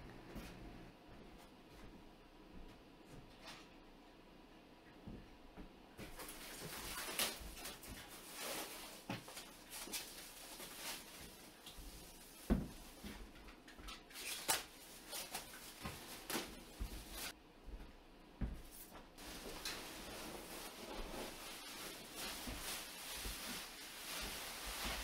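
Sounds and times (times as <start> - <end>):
plastic stretch wrap crackling: 6.1 - 13.0, 14.1 - 17.3, 19.2 - 25.0.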